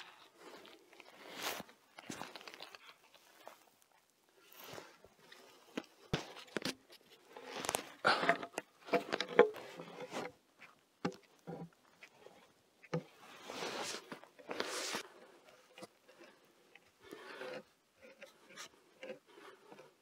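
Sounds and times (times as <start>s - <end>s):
timber post knocks and scrapes: 7.4s - 15.0s.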